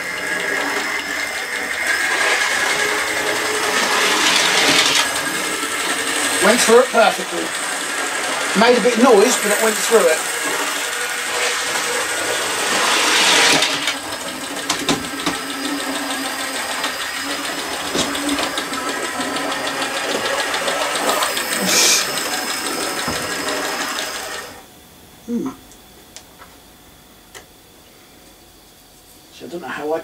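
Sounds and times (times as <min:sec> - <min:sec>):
wheel ticking: 0:00.0 - 0:09.8, 0:13.6 - 0:24.4
model train motor whirr: 0:00.0 - 0:24.6.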